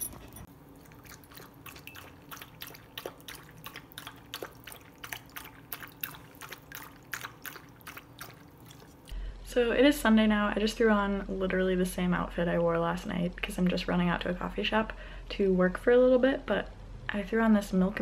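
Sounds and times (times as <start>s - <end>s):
dog lapping water: 0.1s - 9.1s.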